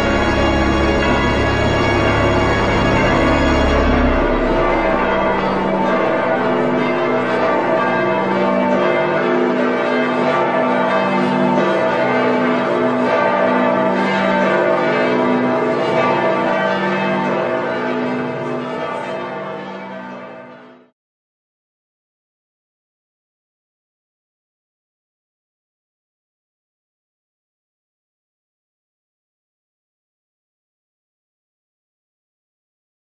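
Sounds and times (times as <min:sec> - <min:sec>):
low held note: 0:00.0 - 0:08.6
church bells pealing: 0:00.0 - 0:20.9.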